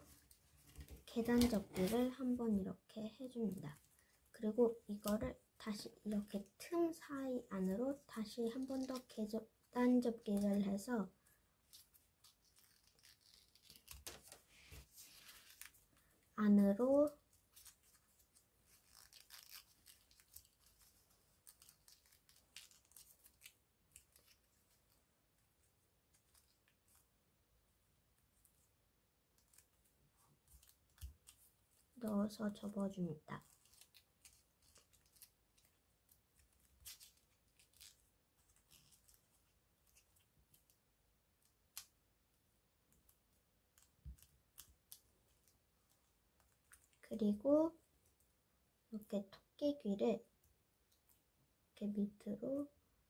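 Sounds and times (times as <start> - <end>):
paper rustling and crinkling: 0.0 - 2.4, 11.6 - 16.2, 17.0 - 25.1, 29.4 - 40.8.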